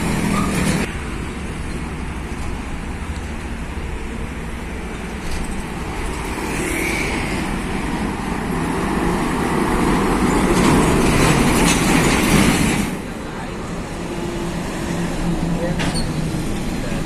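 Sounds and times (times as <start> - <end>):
motorcycle passing: 6.1 - 7.9.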